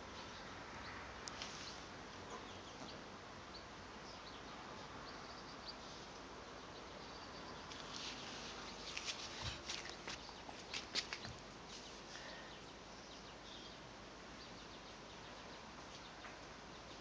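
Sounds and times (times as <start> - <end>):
faint outdoor background hiss: 0.0 - 17.0.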